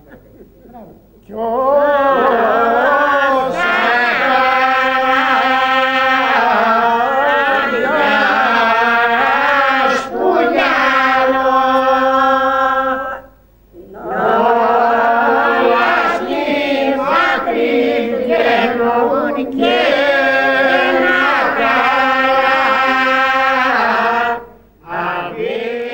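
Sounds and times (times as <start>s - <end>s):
group of voices singing: 1.2s - 25.9s.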